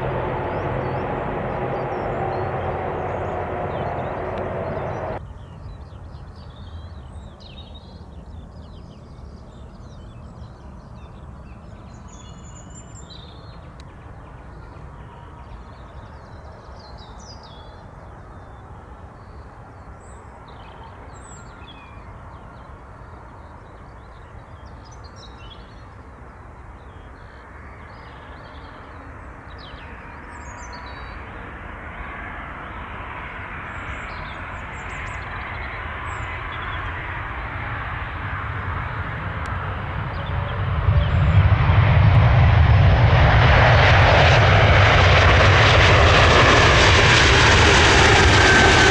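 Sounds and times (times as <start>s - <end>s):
jet rumble: 0.0s - 5.2s, 31.2s - 48.9s.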